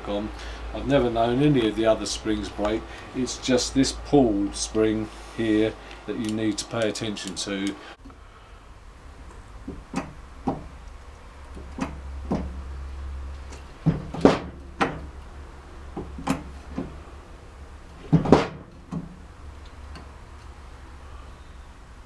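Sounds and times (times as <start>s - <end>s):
bearing press clicks and cracks: 9.2s - 12.6s, 15.9s - 17.0s.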